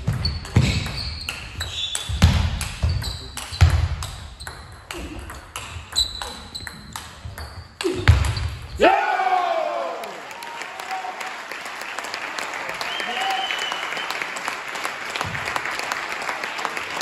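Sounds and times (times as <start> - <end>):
shoes squeaking: 0.0 - 8.8.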